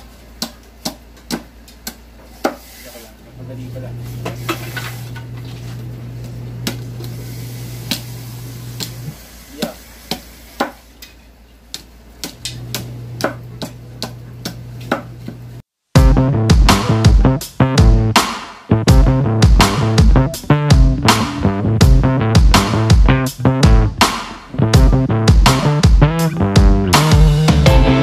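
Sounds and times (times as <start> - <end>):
steady low hum: 11.3 - 28.0
music: 16.0 - 28.0.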